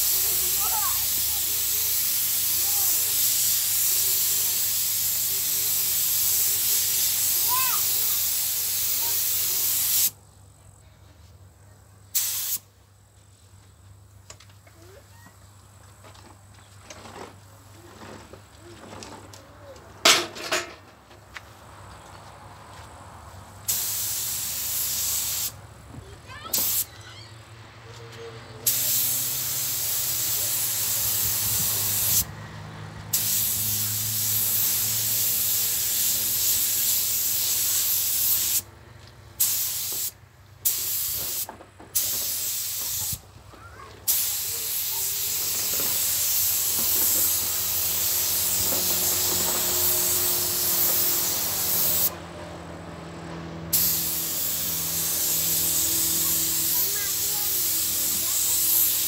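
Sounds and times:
paint spray gun hissing: 0:00.0 - 0:10.2, 0:12.1 - 0:12.7, 0:23.6 - 0:25.6, 0:26.5 - 0:26.9, 0:28.6 - 0:32.3, 0:33.1 - 0:38.7, 0:39.4 - 0:43.2, 0:44.1 - 0:52.2, 0:53.7 - 0:59.0.

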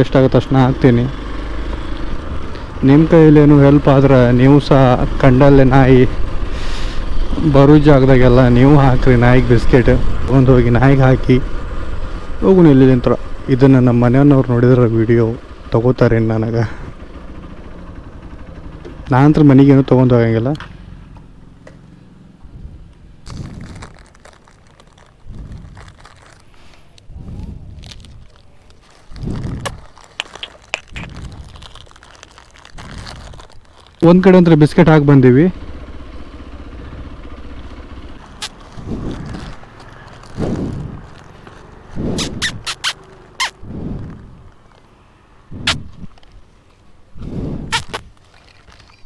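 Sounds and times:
motorcycle engine hum: 0:00.0 - 0:49.0
plastic packet crinkling: 0:23.2 - 0:27.0, 0:27.7 - 0:34.3, 0:38.3 - 0:41.6, 0:47.7 - 0:49.0.

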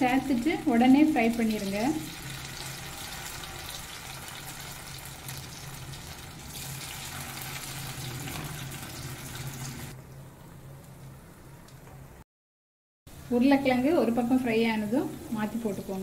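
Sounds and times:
potatoes sizzling in oil: 0:00.0 - 0:09.9.

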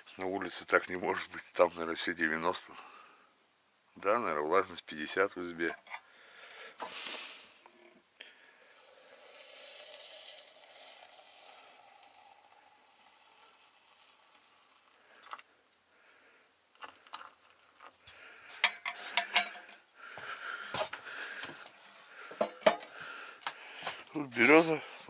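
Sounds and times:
kettle hissing with steam: 0:06.6 - 0:07.8, 0:08.4 - 0:25.0.

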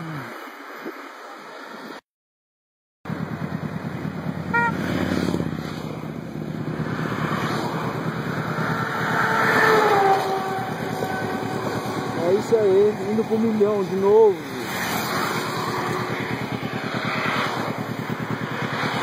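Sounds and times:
passing vehicle: 0:03.1 - 0:19.0
pulsing engine rumble: 0:03.1 - 0:19.0
motorcycle horn toot: 0:04.4 - 0:04.9, 0:10.0 - 0:12.6.

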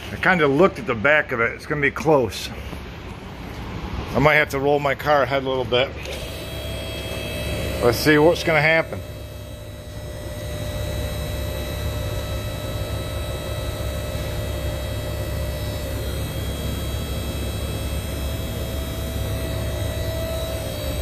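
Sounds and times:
hydraulic pump humming: 0:05.9 - 0:21.0.

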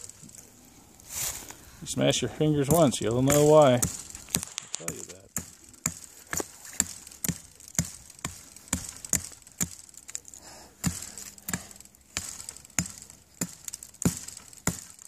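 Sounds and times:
stone axe chopping wood: 0:02.6 - 0:10.2, 0:10.8 - 0:15.0.

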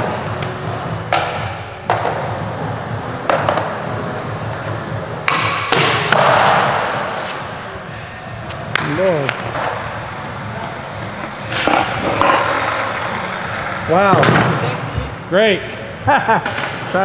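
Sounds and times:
skateboard landing clacks: 0:05.2 - 0:06.6
skateboard wheels rolling on concrete: 0:08.5 - 0:15.1.

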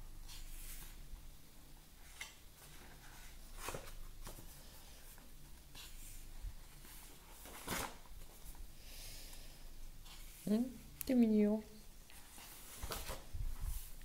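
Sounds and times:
paper pages rustling: 0:02.0 - 0:08.6, 0:12.1 - 0:14.0.

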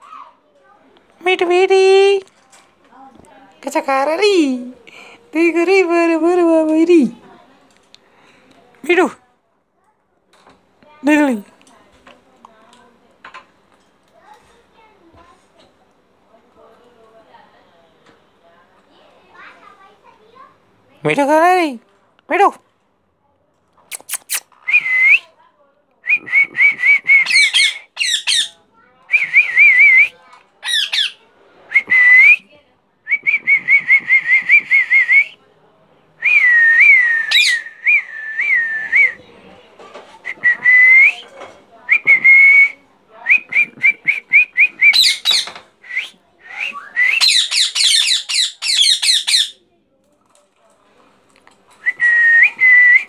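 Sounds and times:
parakeets chirping: 0:27.2 - 0:28.6, 0:30.6 - 0:31.2, 0:37.3 - 0:37.6, 0:44.9 - 0:45.6, 0:47.2 - 0:49.6
shrill parakeet chatter: 0:27.2 - 0:28.6, 0:30.6 - 0:31.2, 0:37.3 - 0:37.6, 0:44.9 - 0:45.6, 0:47.2 - 0:49.6.

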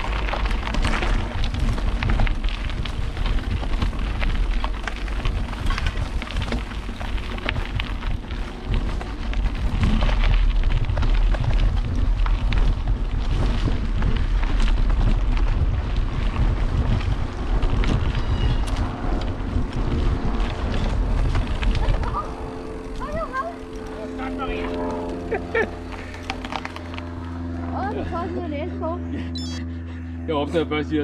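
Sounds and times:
wind buffeting microphone: 0:00.0 - 0:24.8
bike rattling: 0:00.0 - 0:29.6
tyres on dirt trail: 0:00.0 - 0:31.0.

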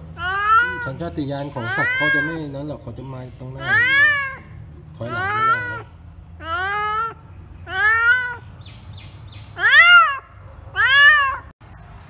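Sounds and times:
kitten meowing: 0:00.2 - 0:01.0, 0:01.6 - 0:02.5, 0:03.6 - 0:04.5, 0:05.1 - 0:08.4, 0:09.6 - 0:10.2, 0:10.8 - 0:11.5.

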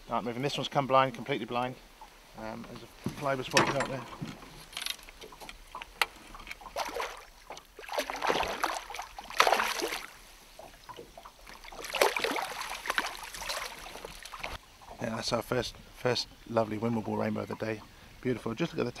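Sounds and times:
fish splashing in water: 0:06.6 - 0:14.6.

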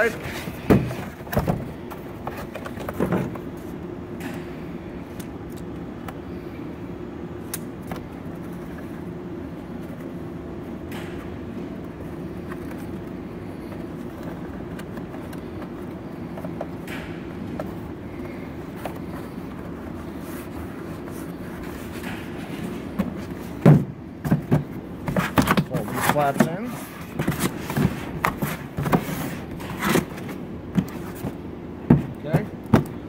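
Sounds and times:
low room hum: 0:00.0 - 0:33.0.

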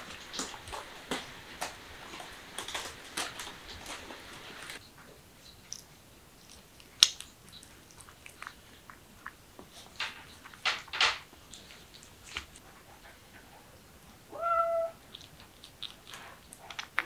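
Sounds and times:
kitten gnawing with small clicks: 0:05.5 - 0:12.7, 0:15.0 - 0:17.0.

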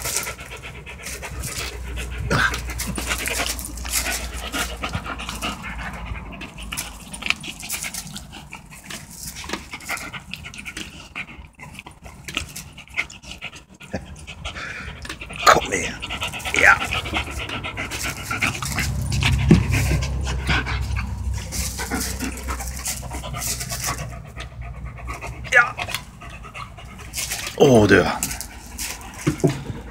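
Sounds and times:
dog panting: 0:00.0 - 0:29.9
rustles and knocks from toy: 0:17.5 - 0:24.5, 0:28.2 - 0:29.9.

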